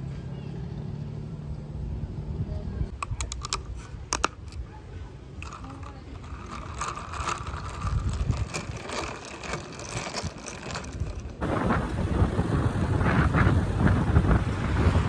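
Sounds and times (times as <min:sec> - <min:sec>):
motorcycle road noise: 0:00.0 - 0:15.0
ice cubes clinking in cup: 0:03.0 - 0:04.6, 0:05.4 - 0:11.4
wind buffeting microphone: 0:05.4 - 0:15.0.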